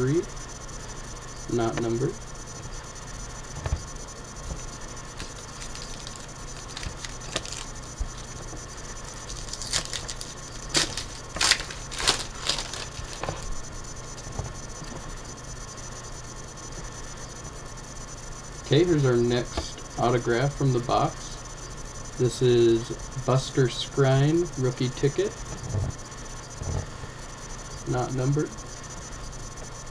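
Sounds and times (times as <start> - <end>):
cards clicking: 5.2 - 8.2, 9.2 - 13.5
foil wrapper tearing and crinkling: 5.2 - 8.2, 9.1 - 13.6.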